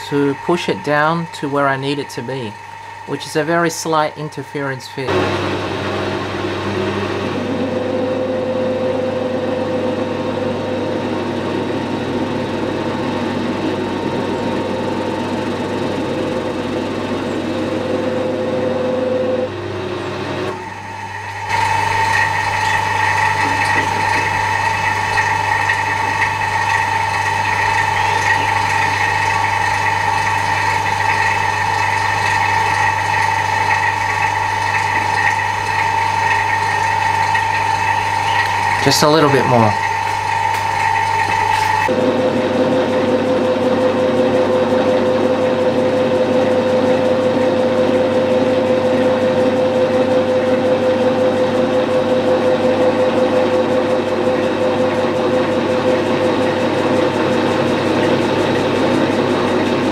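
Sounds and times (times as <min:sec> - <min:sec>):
metal lathe running: 0:00.0 - 0:59.9
high-pitched whine: 0:20.4 - 0:33.2.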